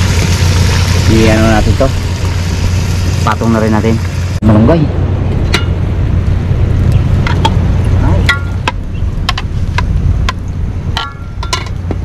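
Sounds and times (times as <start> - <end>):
low rumble: 0.0 - 12.0
pot lid clinking against metal pot: 11.0 - 11.8.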